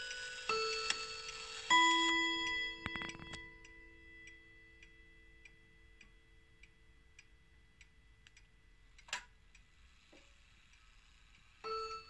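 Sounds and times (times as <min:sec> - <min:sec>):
wall clock ticking: 0:00.0 - 0:12.0.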